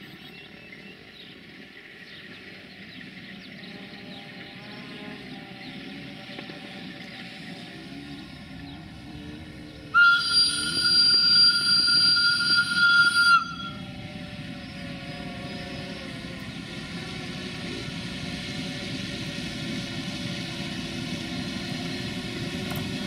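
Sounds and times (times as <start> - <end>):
diesel locomotive engine running: 0.0 - 23.0
locomotive whistle: 9.9 - 15.8.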